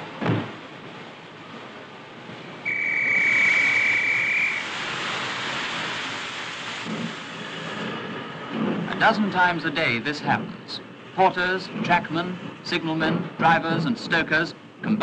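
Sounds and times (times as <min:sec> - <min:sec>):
railway whistle: 0:02.6 - 0:05.2
loud rushing hiss: 0:02.7 - 0:09.7.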